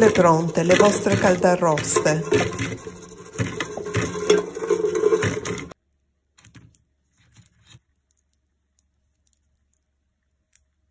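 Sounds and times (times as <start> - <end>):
chestnuts clattering into wooden bowl: 0.0 - 5.8.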